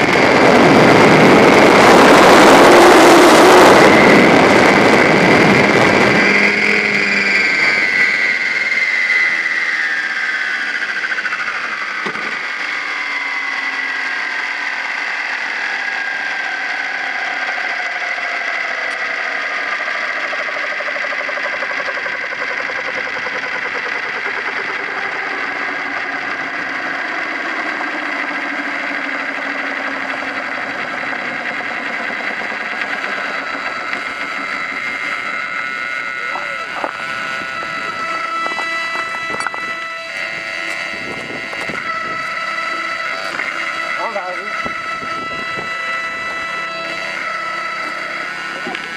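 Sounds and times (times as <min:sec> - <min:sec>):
helicopter rotor whine spooling down: 0:00.0 - 0:48.9.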